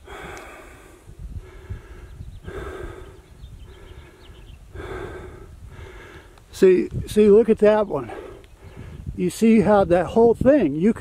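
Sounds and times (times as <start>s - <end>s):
person breathing heavily: 0.0s - 6.5s, 8.0s - 9.1s.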